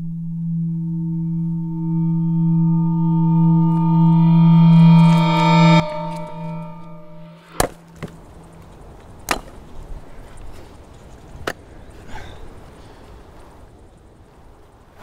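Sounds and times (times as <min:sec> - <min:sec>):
droning musical tone: 0:00.0 - 0:09.2
sharp impacts: 0:00.0 - 0:09.6.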